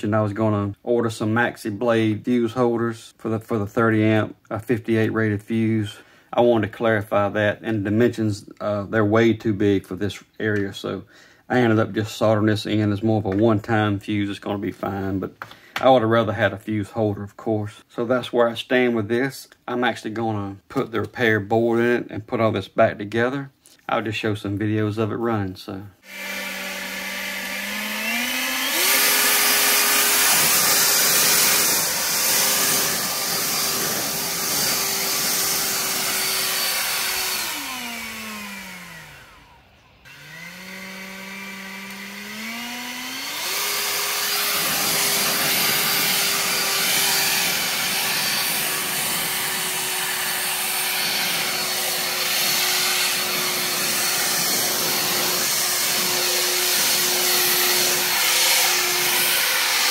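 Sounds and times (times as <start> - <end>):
leaf blower fan whine: 26.0 - 59.9.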